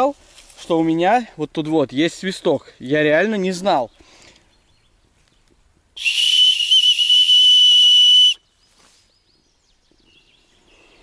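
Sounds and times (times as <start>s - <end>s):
shrill whistle blown: 6.0s - 8.4s.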